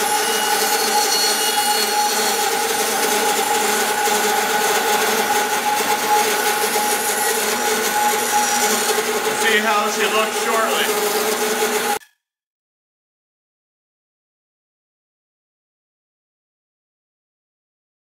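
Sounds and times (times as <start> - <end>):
band saw humming: 0.0 - 12.0
saw blade hissing through wood: 5.6 - 11.2.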